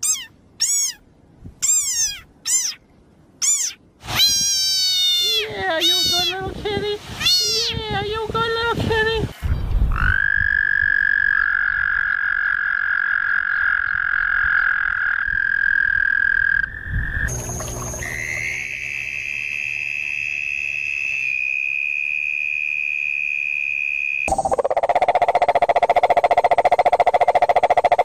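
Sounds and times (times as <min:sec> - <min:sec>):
toads trilling: 0:00.0 - 0:01.0, 0:01.6 - 0:02.8, 0:03.4 - 0:06.3.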